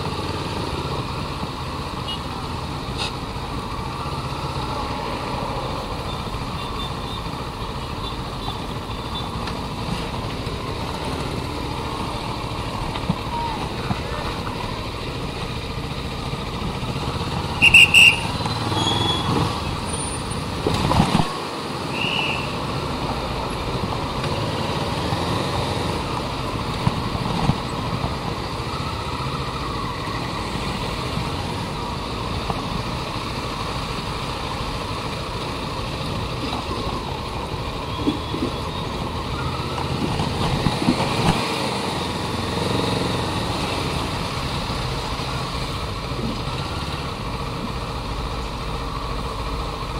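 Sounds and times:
motorcycle engine running: 0.0s - 21.9s
road and wind noise: 0.0s - 49.9s.

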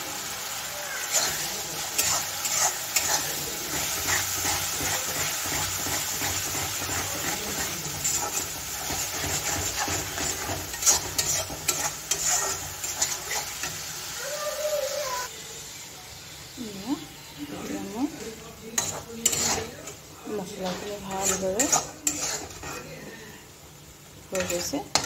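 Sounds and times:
onions sizzling in oil: 0.0s - 25.0s
spatula scraping metal pan: 1.1s - 13.9s, 18.8s - 23.0s, 24.3s - 25.0s.

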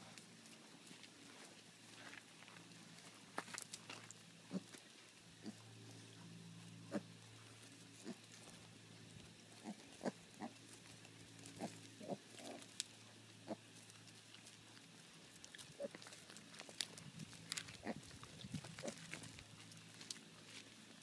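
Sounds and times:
piglets grunting: 4.5s - 4.8s, 5.4s - 5.7s, 6.9s - 7.1s, 8.0s - 8.6s, 9.5s - 10.6s, 11.4s - 12.7s, 13.4s - 13.7s, 15.6s - 16.1s, 17.5s - 19.3s.

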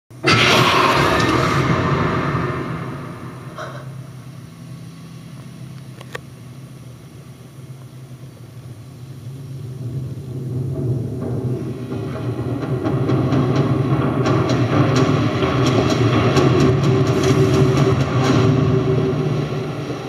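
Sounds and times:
loud hit: 0.1s - 4.4s
low rumbling soundtrack drone: 0.1s - 20.0s.

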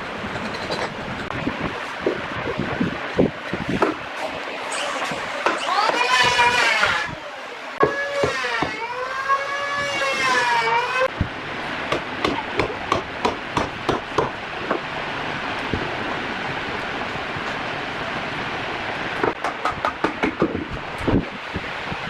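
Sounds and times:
sharp knocks like hammering: 7.8s - 8.8s, 11.9s - 14.8s, 19.2s - 20.7s
wavering siren-like tone: 7.9s - 11.1s.

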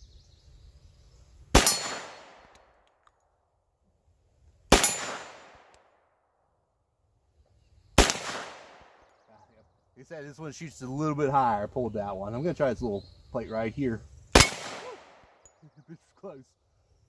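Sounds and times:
pistol shots: 1.5s - 2.6s, 4.7s - 5.8s, 8.0s - 9.0s, 14.4s - 15.4s.

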